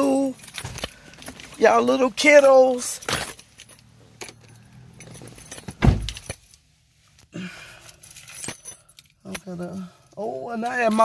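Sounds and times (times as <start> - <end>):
car keys jangling in lock: 0.0 - 6.6, 7.8 - 11.0
heavy thump: 5.7 - 6.2.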